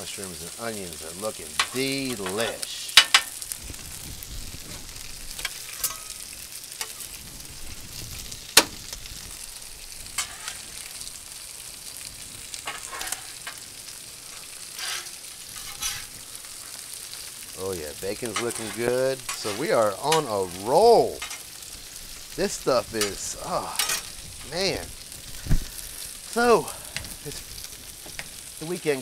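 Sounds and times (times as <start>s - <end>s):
food sizzling on a griddle: 0.0s - 29.0s
metal spatula scraping griddle: 1.2s - 3.5s, 4.6s - 7.1s, 10.0s - 11.2s, 12.0s - 24.6s.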